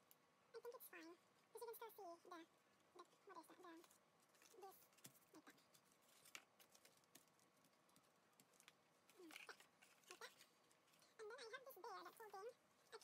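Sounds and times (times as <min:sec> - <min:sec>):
card stock rustling and tapping: 0:03.8 - 0:11.2.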